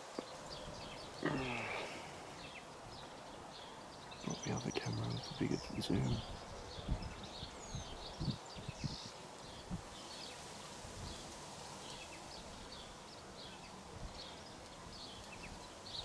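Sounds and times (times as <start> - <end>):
distant birds chirping: 0.0 - 10.4.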